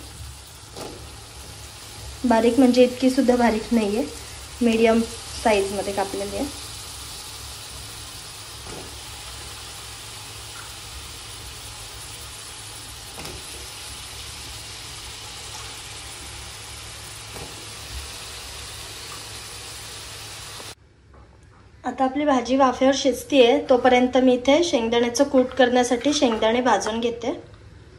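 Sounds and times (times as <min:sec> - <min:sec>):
vegetables sizzling in a pan: 0:00.0 - 0:20.8.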